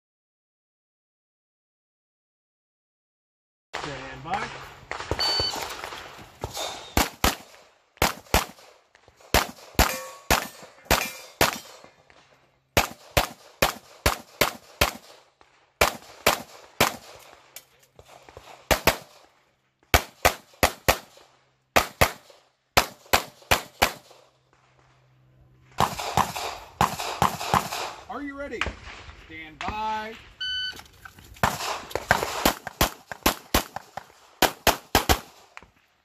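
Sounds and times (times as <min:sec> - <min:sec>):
pistol shots: 0:03.8 - 0:11.9, 0:12.8 - 0:17.4, 0:18.3 - 0:19.2, 0:19.9 - 0:24.8, 0:25.8 - 0:29.1, 0:31.4 - 0:35.6.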